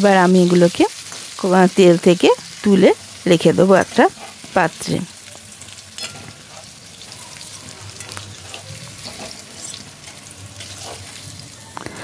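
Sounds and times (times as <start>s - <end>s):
potatoes sizzling in oil: 0.0s - 12.0s
spatula scraping a pan: 4.1s - 4.6s, 5.6s - 12.0s.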